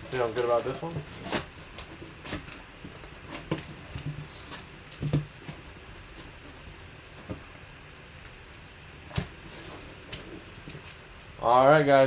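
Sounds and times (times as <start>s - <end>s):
foil packs rustling: 0.0s - 5.2s.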